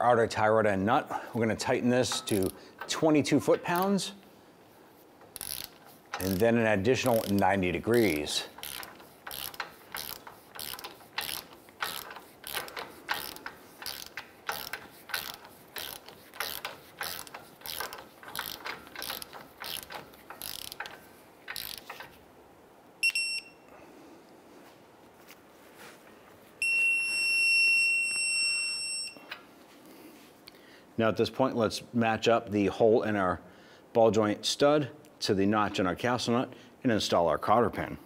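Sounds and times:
torque wrench ratchet clicking: 2.1 - 3.0, 5.2 - 22.2
electronic beep: 23.0 - 23.6.

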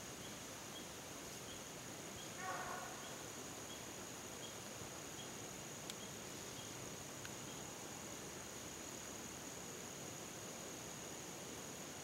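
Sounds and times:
short insect chirps: 0.0 - 9.5
crickets droning: 0.0 - 12.0.

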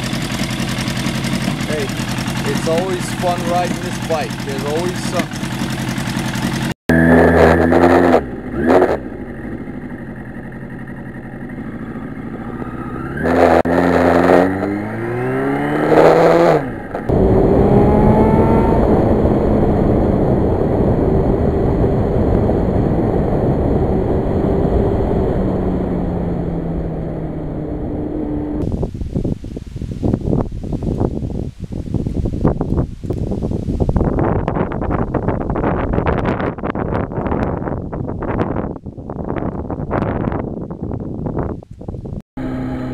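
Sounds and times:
motorcycle engine revving: 0.0 - 28.9, 42.4 - 42.9
wind noise on microphone: 13.2 - 42.2.

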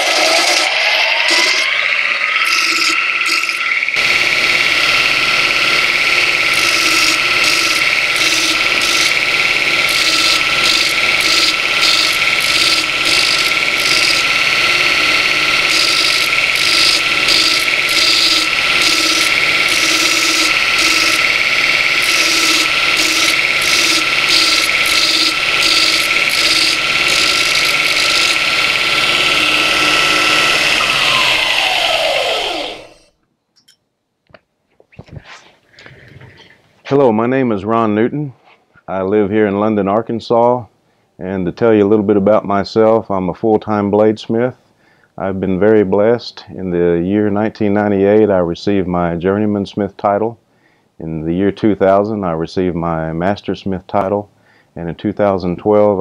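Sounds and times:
blade grinding on belt: 0.0 - 33.1
belt grinder motor whine: 0.0 - 33.2
grinder winding down: 0.0 - 33.2.

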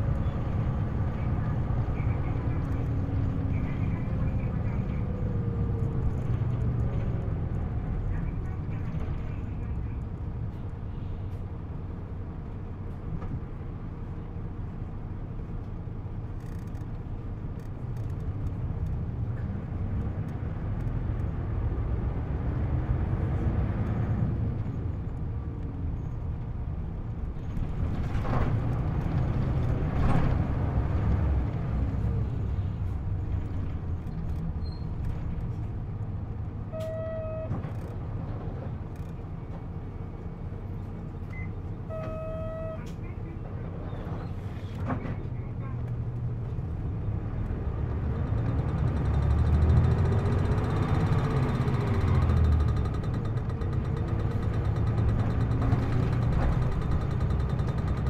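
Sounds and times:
bus diesel engine revving: 46.8 - 58.0.

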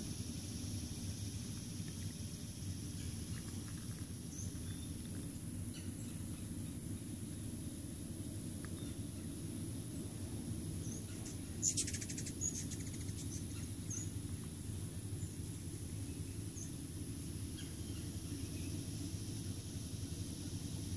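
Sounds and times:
high-pitched insect drone: 0.0 - 20.9
low steady rumble: 0.0 - 20.9
bird chattering trill: 5.7 - 6.5, 10.8 - 14.2, 16.0 - 18.8
high bird chirps: 10.8 - 14.2.

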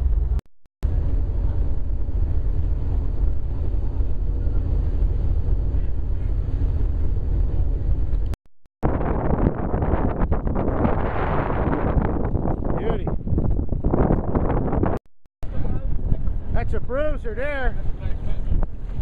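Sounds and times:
boat engine droning: 0.0 - 8.3.

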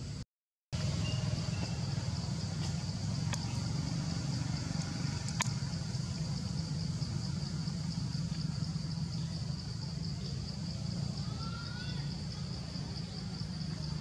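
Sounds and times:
pulsing insect drone: 0.8 - 14.0
faint clicks: 4.8 - 5.6.

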